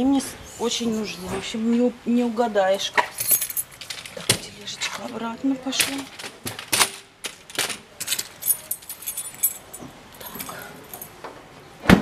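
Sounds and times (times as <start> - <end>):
metallic knocks and clinks: 3.0 - 4.5, 5.8 - 11.2.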